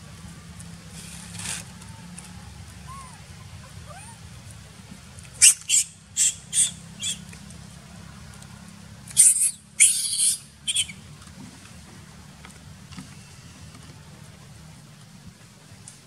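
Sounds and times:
baby monkey squealing: 2.9s - 4.3s, 5.4s - 7.2s, 9.2s - 11.0s.

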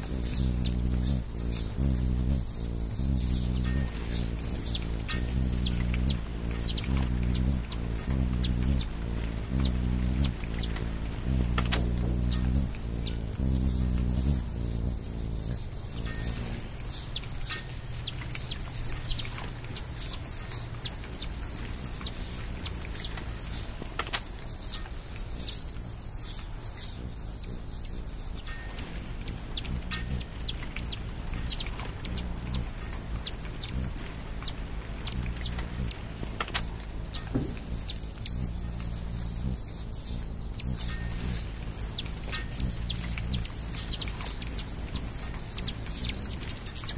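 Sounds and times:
insects trilling: 0.0s - 46.9s.

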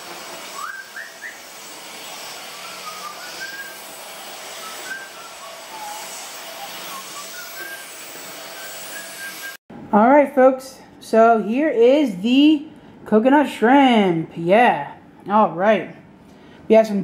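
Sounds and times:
stick vacuum motor hiss: 0.0s - 9.6s
faint whistle-like tones: 4.6s - 6.2s, 6.8s - 7.9s.

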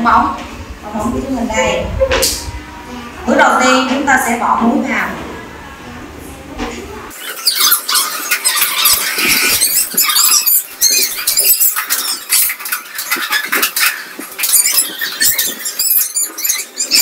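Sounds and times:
high-pitched chirping and squeaking: 7.1s - 17.0s.

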